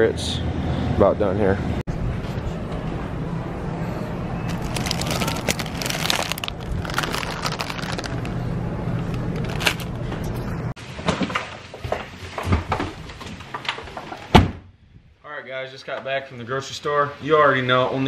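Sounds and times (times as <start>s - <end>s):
shopping cart rattling: 4.5s - 8.4s, 9.0s - 10.0s
snack bag crinkling: 4.5s - 10.0s.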